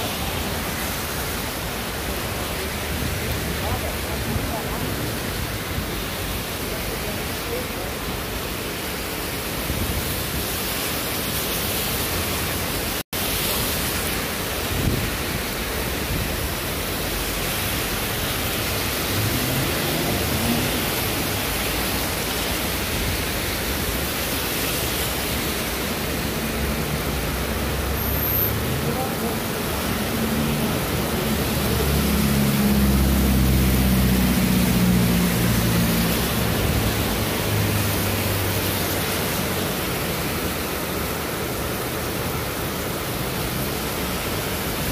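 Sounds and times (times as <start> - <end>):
cars driving through water: 0.0 - 44.9
heavy rain on pavement: 0.0 - 44.9
vehicle engine hum: 26.2 - 38.8.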